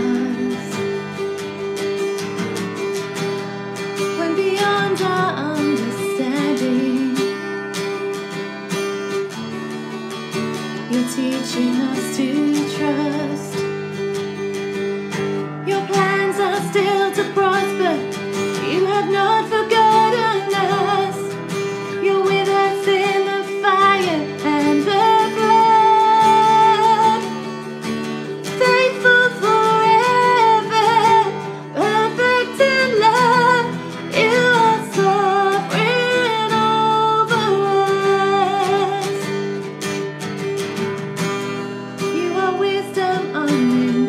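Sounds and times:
woman singing worship song: 0.0 - 0.8, 10.9 - 13.5, 15.6 - 21.4, 22.0 - 27.3, 28.5 - 39.2, 42.1 - 44.0
acoustic guitar strumming: 0.0 - 44.0.

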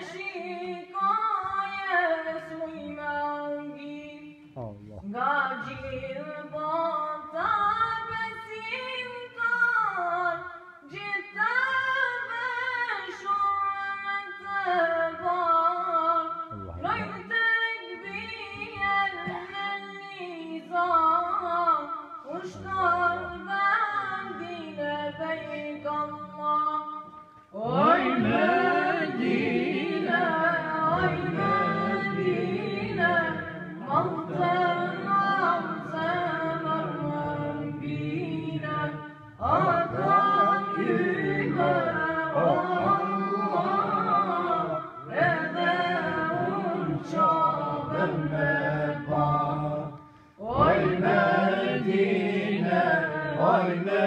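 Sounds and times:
young male voice singing: 22.3 - 26.2, 39.4 - 46.4
group of voices singing: 22.3 - 26.3, 27.6 - 54.0.

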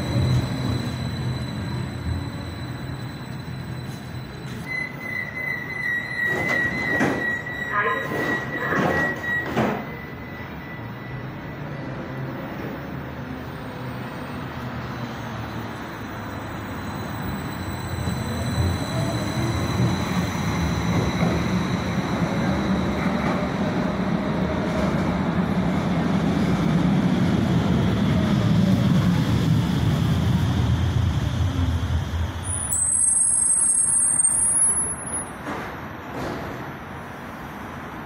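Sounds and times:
high-pitched rail squeal: 0.0 - 25.3, 32.3 - 35.5
train rumbling on rails: 0.0 - 38.0.

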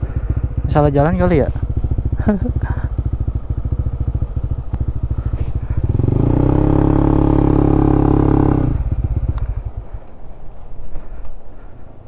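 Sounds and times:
motorcycle engine idling and revving: 0.0 - 12.0.

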